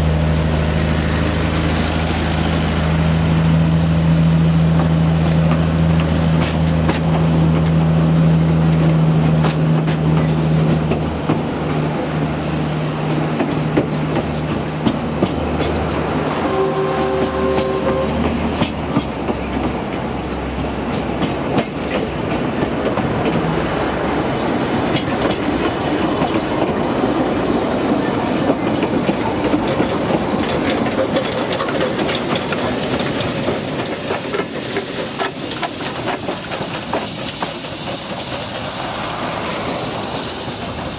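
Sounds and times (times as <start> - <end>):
train wheels clicking over rail joints: 1.6 - 40.9
steam locomotive hiss: 31.8 - 40.9.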